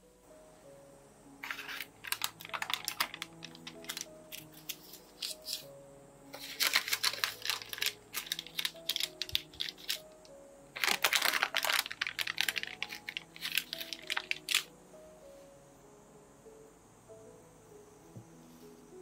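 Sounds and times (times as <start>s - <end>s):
soft background music: 0.0s - 19.0s
parchment paper crinkling: 1.4s - 5.7s, 6.3s - 14.7s.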